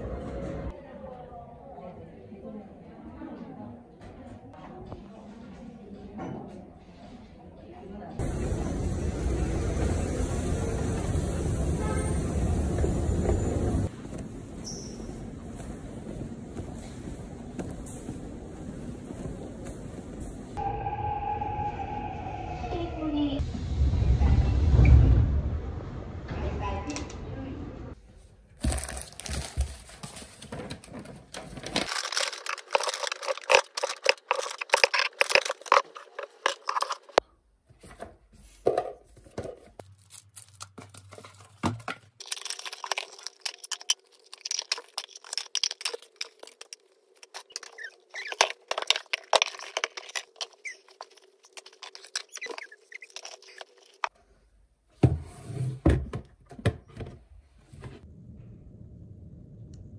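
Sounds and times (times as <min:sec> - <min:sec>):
paper bags rustling: 0:28.6 - 0:37.2, 0:39.6 - 0:54.1.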